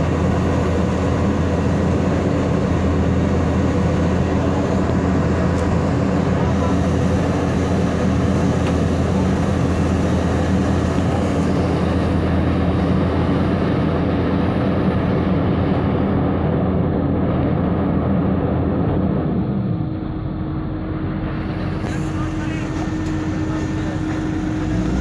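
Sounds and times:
heavy diesel engines droning: 0.0s - 25.0s
steady higher hum: 0.0s - 25.0s.

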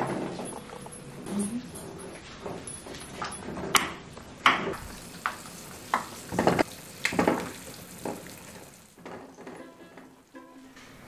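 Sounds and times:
kitchen utensils clattering: 0.0s - 11.0s
steady low hiss: 3.5s - 11.0s.

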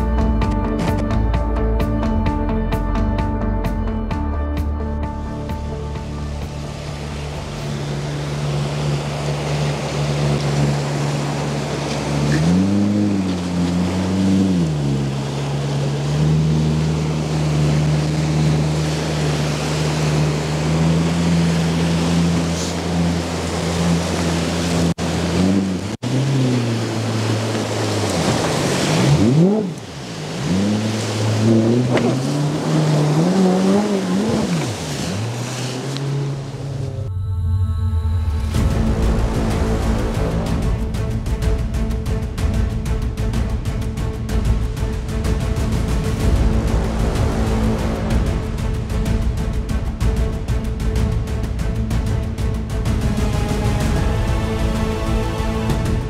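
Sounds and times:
rushing river water: 0.0s - 37.1s, 38.0s - 56.0s
jet boat motor revving: 4.3s - 37.1s, 38.4s - 56.0s.

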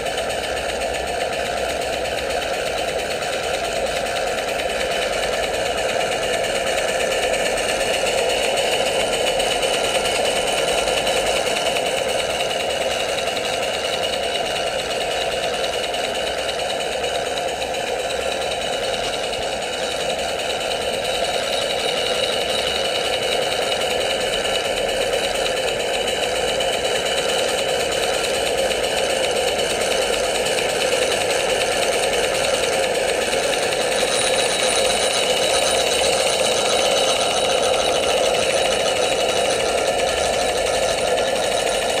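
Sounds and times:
steam engine winch clattering: 0.0s - 42.0s.

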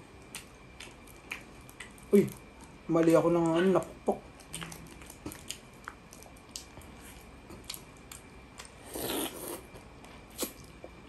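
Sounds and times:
slurp: 8.9s - 9.7s.

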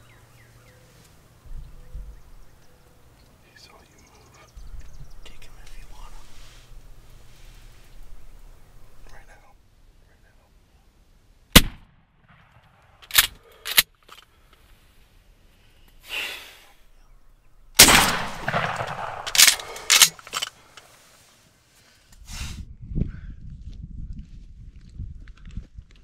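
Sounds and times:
shotgun shot: 11.6s - 12.7s, 17.8s - 19.8s.

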